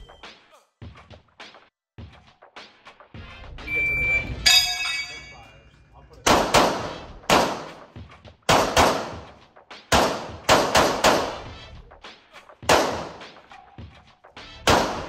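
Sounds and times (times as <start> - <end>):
pistol shots echoing indoors: 6.2 - 7.9, 8.5 - 9.3, 9.9 - 11.5, 12.6 - 13.4, 14.7 - 15.0.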